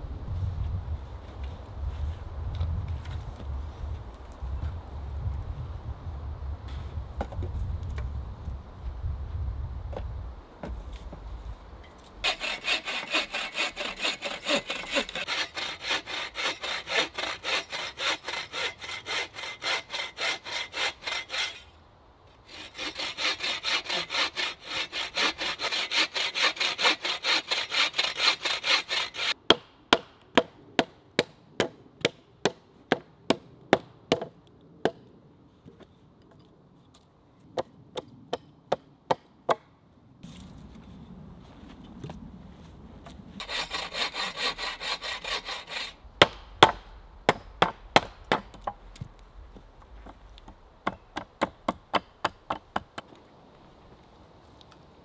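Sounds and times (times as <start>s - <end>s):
bow saw cutting wood: 12.2s - 21.7s, 22.4s - 29.4s, 43.4s - 46.0s
hatchet chopping log: 25.2s - 35.0s, 46.2s - 49.1s, 50.0s - 53.2s.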